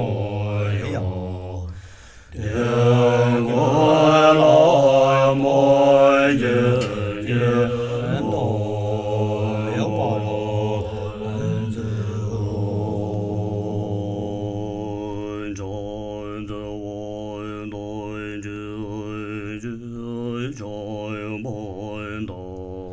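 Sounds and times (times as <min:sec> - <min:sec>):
low drone of long horns: 0:02.4 - 0:16.4.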